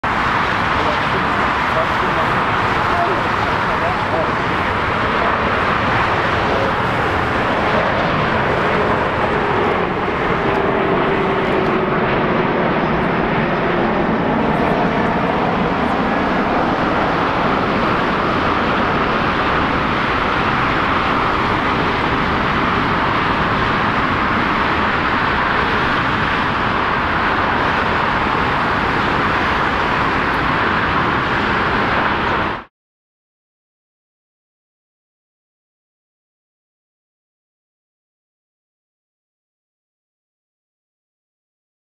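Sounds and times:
jet engine noise: 0.0s - 32.7s.

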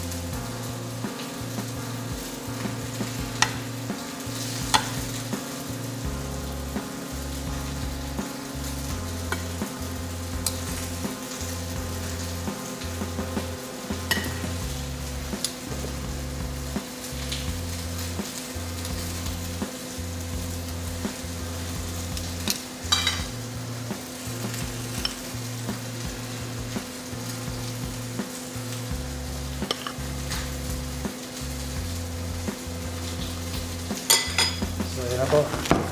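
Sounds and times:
steak sizzling in a pan: 0.0s - 35.9s
metal utensils clinking on plate: 14.1s - 14.4s, 22.5s - 23.3s, 29.7s - 30.0s, 34.1s - 34.6s.

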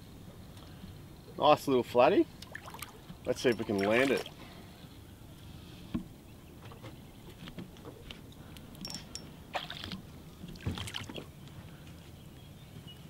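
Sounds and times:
faint water sounds: 0.1s - 12.0s
short splashes: 2.4s - 3.0s, 3.6s - 4.4s, 9.5s - 11.3s.

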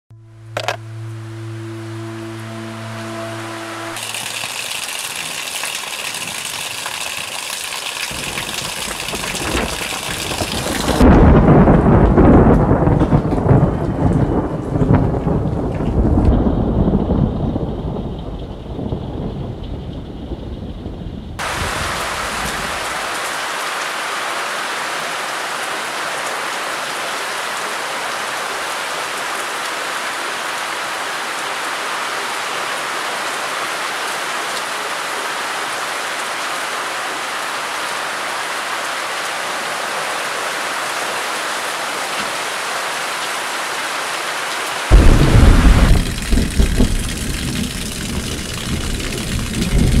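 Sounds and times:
loud low rumble: 0.1s - 4.0s, 44.9s - 50.0s
steady rain falling: 0.3s - 50.0s.

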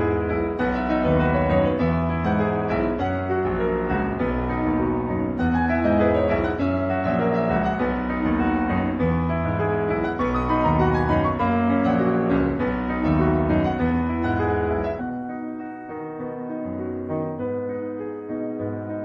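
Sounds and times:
piano music: 0.0s - 19.0s.

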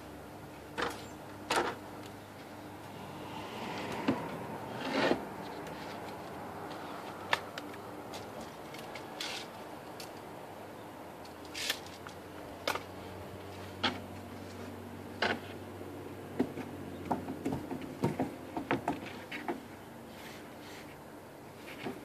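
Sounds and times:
plywood rustling and scraping: 2.4s - 10.2s, 17.6s - 22.0s.

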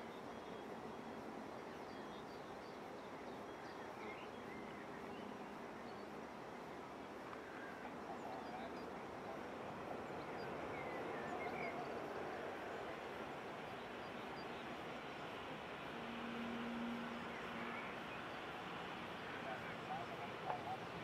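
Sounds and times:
distant jet engine rush: 7.4s - 21.0s
birds chirping: 16.3s - 21.0s.

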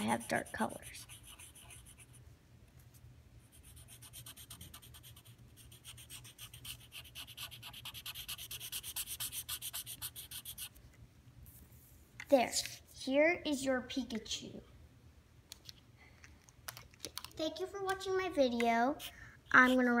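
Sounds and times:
marker rubbing on paper: 0.0s - 2.2s, 3.4s - 10.8s.

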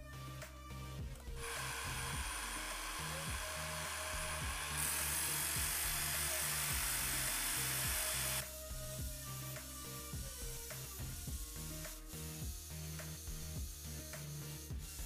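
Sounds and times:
background music: 0.0s - 15.0s
drill spinning sanding drum: 1.4s - 9.0s
knife blade hissing grind: 1.4s - 15.0s.

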